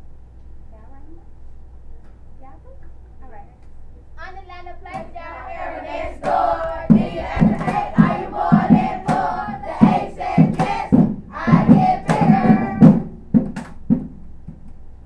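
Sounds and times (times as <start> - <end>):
children chanting in unison: 5.0 - 12.9.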